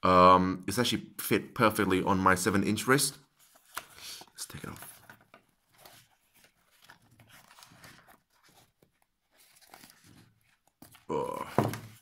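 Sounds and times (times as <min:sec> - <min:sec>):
faint strap rustling and scraping: 0:04.6 - 0:11.1.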